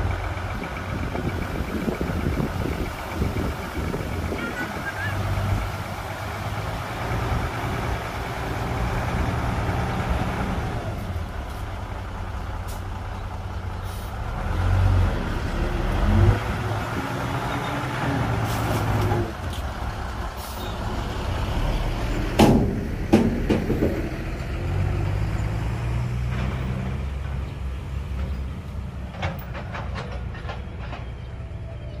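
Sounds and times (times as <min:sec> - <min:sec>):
diesel machinery engine: 0:00.0 - 0:32.0
loud knocks and clanks: 0:22.3 - 0:24.1.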